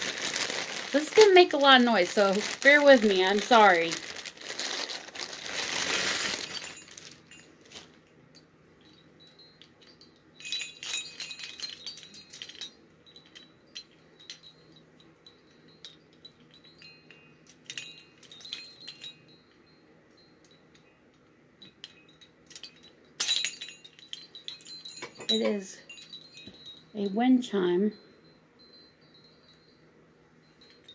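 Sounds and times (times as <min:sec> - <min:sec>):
wind chime bells jingling: 0:00.0 - 0:07.8, 0:08.8 - 0:21.0, 0:21.6 - 0:30.9
plastic wrapping crinkling: 0:00.0 - 0:08.1.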